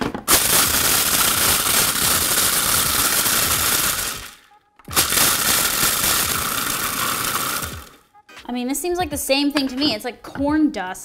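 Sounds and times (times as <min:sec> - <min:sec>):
food processor grinding: 0:00.3 - 0:08.0.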